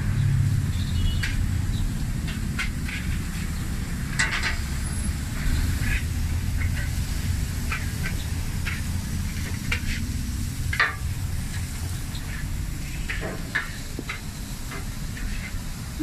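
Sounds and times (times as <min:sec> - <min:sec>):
meat sizzling on a griddle: 0:00.0 - 0:16.0
metal spatula scraping steel: 0:02.1 - 0:16.0.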